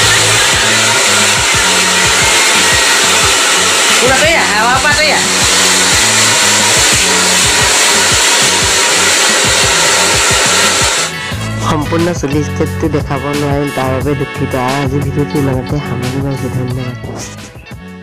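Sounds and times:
hair dryer blowing: 0.0 - 11.6
background music with steady beat: 0.0 - 18.0.

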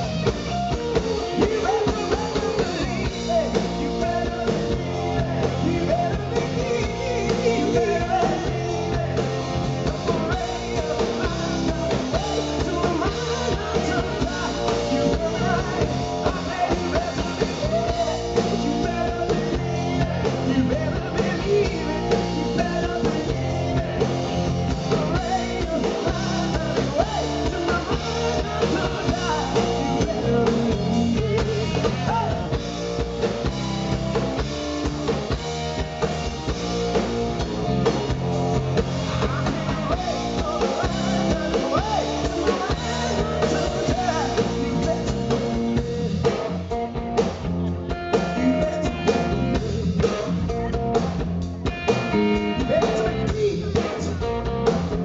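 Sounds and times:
man singing lead vocals: 0.0 - 34.6, 37.7 - 46.4, 47.6 - 51.0, 52.0 - 55.0
bass guitar: 0.0 - 55.0
drum kit beat: 0.0 - 55.0
electric guitar: 0.0 - 55.0.

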